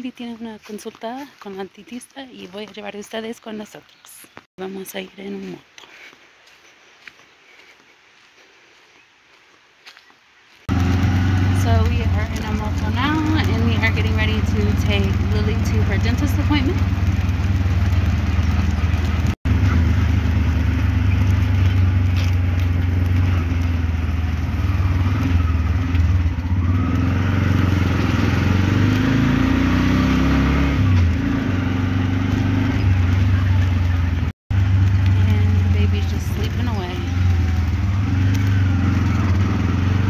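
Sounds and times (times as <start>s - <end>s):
small engine humming while driving: 10.7s - 40.0s.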